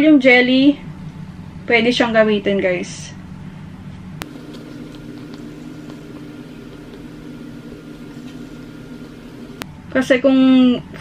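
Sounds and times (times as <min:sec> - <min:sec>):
steady low hum: 0:04.1 - 0:09.9
stick stirring thick mixture: 0:04.2 - 0:09.6.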